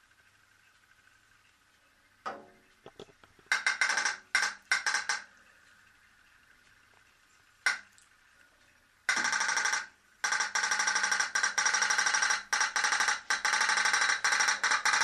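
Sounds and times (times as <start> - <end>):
toy steam boat humming and popping: 9.1 - 15.0.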